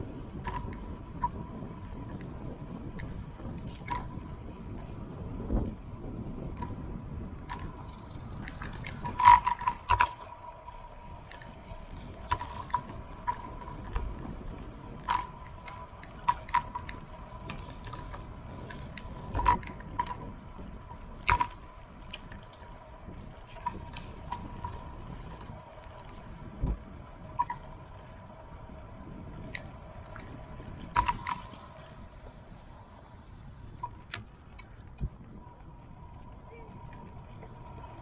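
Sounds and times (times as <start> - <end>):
steady thin whine: 0.0 - 38.0.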